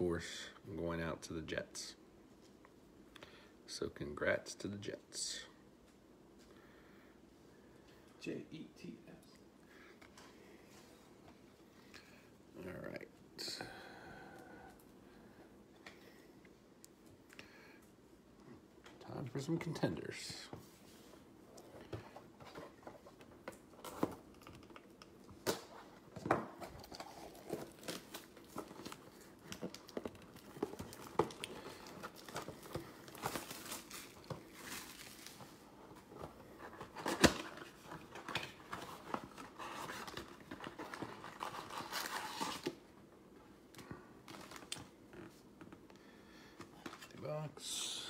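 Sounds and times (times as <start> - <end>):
foil packs crinkling: 26.8 - 35.6.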